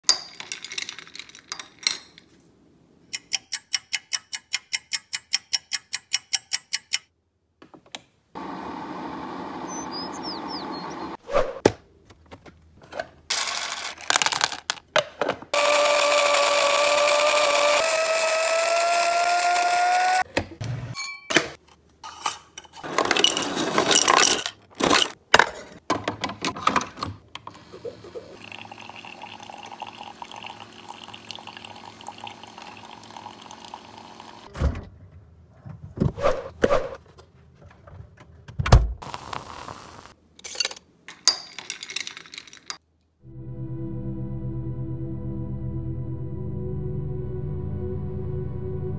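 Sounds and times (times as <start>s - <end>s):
coffee maker faint hum: 8.4s - 11.1s, 27.5s - 34.5s
coffee maker rushing noise: 8.4s - 11.1s, 15.6s - 20.2s, 27.5s - 34.5s
rising tone: 43.2s - 48.9s.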